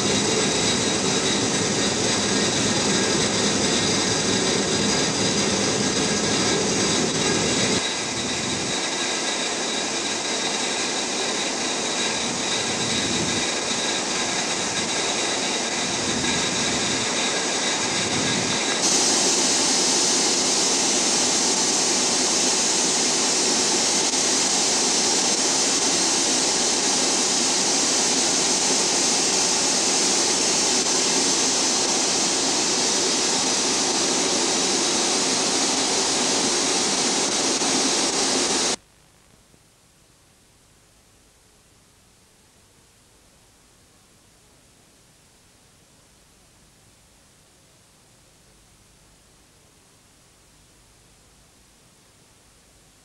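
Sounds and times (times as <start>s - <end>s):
loud hiss: 0.0s - 38.8s
ship machinery roar: 0.0s - 38.8s.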